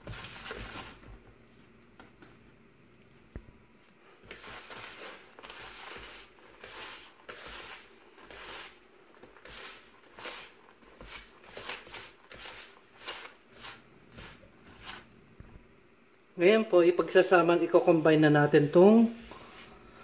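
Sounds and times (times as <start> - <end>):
fingers rubbing crumbly mix in bowl: 4.1 - 15.1.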